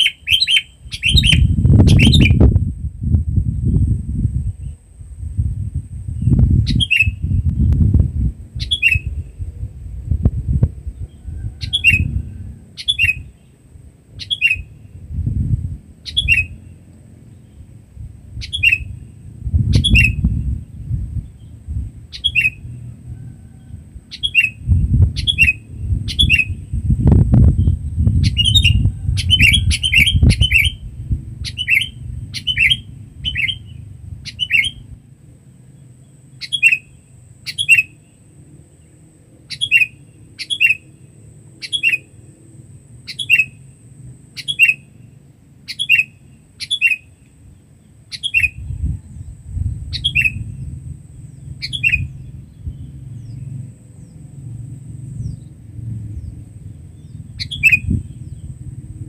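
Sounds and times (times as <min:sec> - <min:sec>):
bulbul calling: 0:00.0 - 0:02.5, 0:06.6 - 0:07.3, 0:08.6 - 0:09.2, 0:12.8 - 0:13.5, 0:14.2 - 0:14.8, 0:16.0 - 0:16.7, 0:18.4 - 0:19.1, 0:19.7 - 0:20.3, 0:22.1 - 0:22.8, 0:24.1 - 0:26.6, 0:27.6 - 0:30.8, 0:31.4 - 0:34.9, 0:36.4 - 0:38.1, 0:39.5 - 0:40.9, 0:41.6 - 0:42.2, 0:43.0 - 0:43.6, 0:44.4 - 0:45.0, 0:45.7 - 0:47.3, 0:48.1 - 0:48.9, 0:49.9 - 0:50.7, 0:51.3 - 0:53.5, 0:57.0 - 0:58.5
low rumble: 0:48.6 - 0:59.0.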